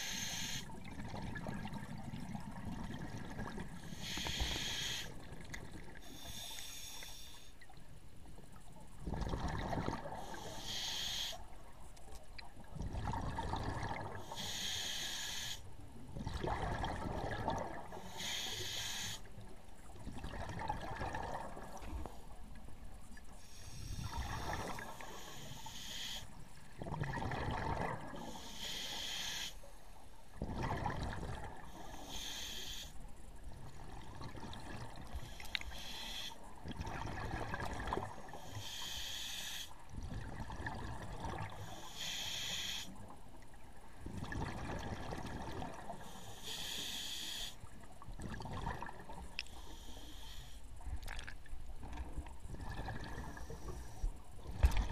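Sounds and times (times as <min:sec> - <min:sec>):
regulator hiss on inhale: 0:00.0 - 0:00.7, 0:03.8 - 0:05.2, 0:06.0 - 0:07.6, 0:10.2 - 0:11.5, 0:14.2 - 0:15.7, 0:18.0 - 0:19.3, 0:23.4 - 0:26.4, 0:28.2 - 0:29.8, 0:31.6 - 0:33.0, 0:35.1 - 0:36.5, 0:38.3 - 0:39.8, 0:41.5 - 0:43.0, 0:46.0 - 0:47.7, 0:49.4 - 0:50.8
exhaled air bubbling underwater: 0:00.0 - 0:07.0, 0:07.6 - 0:29.4, 0:30.3 - 0:54.9.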